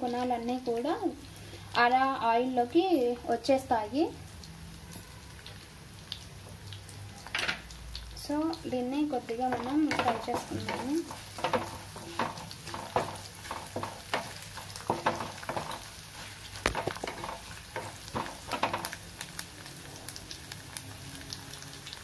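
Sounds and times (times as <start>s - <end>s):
spices sizzling in hot oil: 0.0s - 22.0s
wooden spatula scraping a pan: 9.3s - 19.0s.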